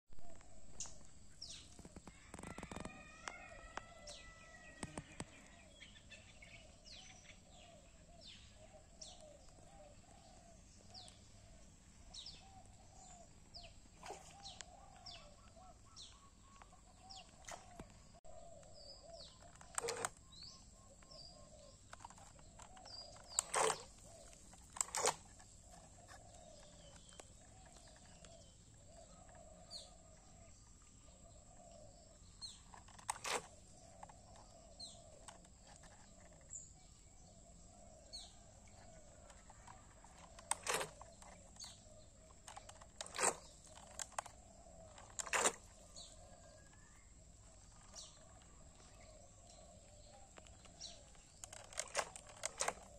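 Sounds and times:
birds chirping: 0:00.2 - 0:52.9.

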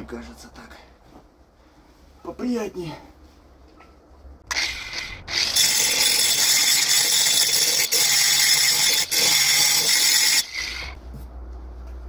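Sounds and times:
angle grinder grinding steel: 0:04.5 - 0:11.0.

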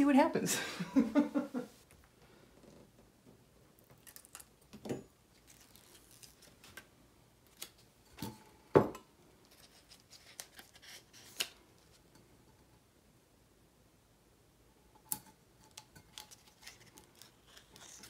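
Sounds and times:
hands handling objects: 0:05.3 - 0:06.9, 0:09.4 - 0:12.0, 0:15.2 - 0:18.0.

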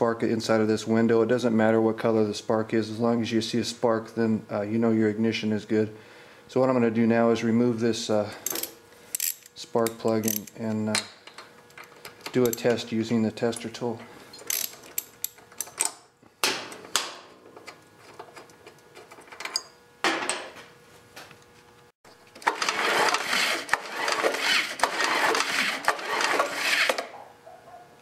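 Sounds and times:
socket wrench clicking: 0:08.5 - 0:10.7, 0:14.5 - 0:16.0
engine turning over rattling: 0:22.4 - 0:26.7.

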